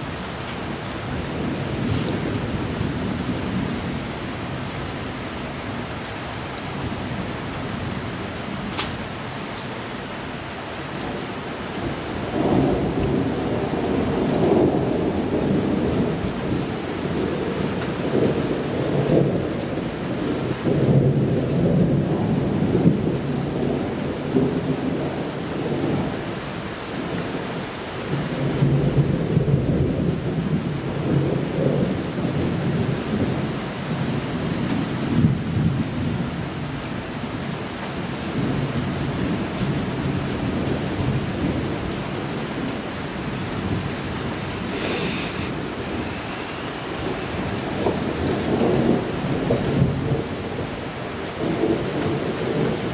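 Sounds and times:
steady rain: 0.0 - 52.9
rolling thunder: 46.9 - 50.8.

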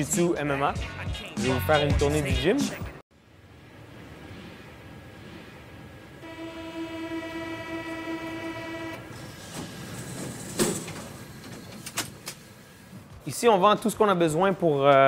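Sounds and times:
single-pitched horn tone: 6.2 - 9.0.

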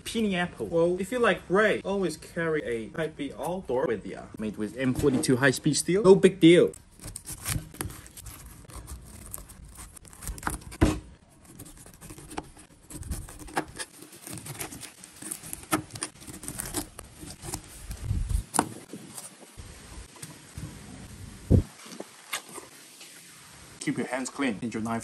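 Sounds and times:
knife crunching through pineapple: 6.8 - 18.1.

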